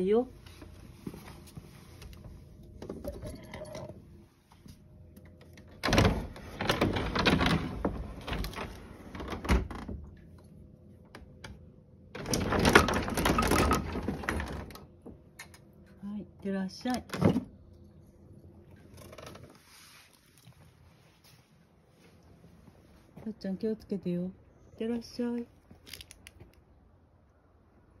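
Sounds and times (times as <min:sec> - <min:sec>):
sliding door rattling and scraping: 0:05.8 - 0:10.0, 0:12.1 - 0:14.9.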